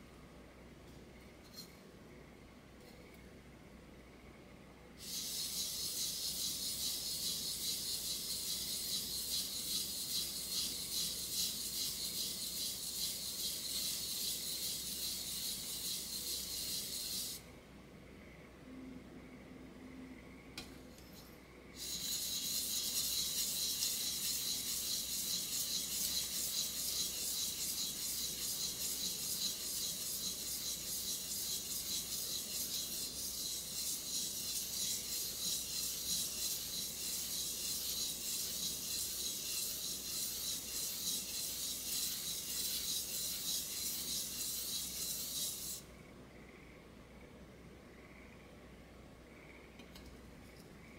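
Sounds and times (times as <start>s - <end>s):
knife scraping on whetstone: 5.0s - 17.4s, 21.8s - 45.8s.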